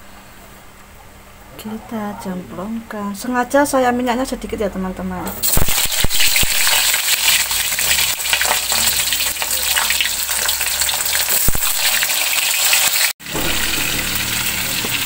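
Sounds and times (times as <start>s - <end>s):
food sizzling in a wok: 5.3s - 15.0s.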